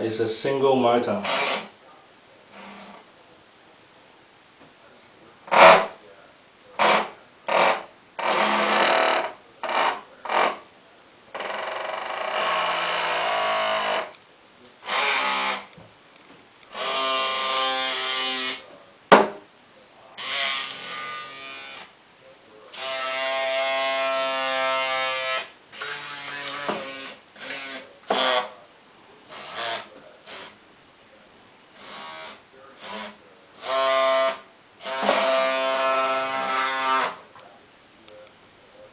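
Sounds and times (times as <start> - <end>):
tiny electric motor whining: 16.6 - 18.7, 22.8 - 28.5.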